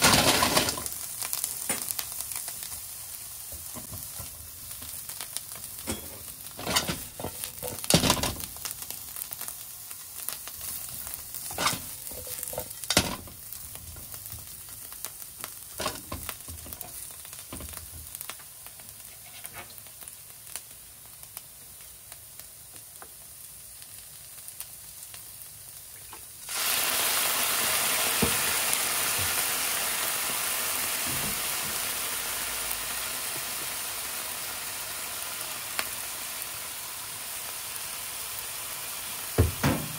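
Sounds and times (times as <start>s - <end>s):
food sizzling in oil: 0.0s - 39.9s
spatula scraping a pan: 11.4s - 13.1s, 19.0s - 19.8s.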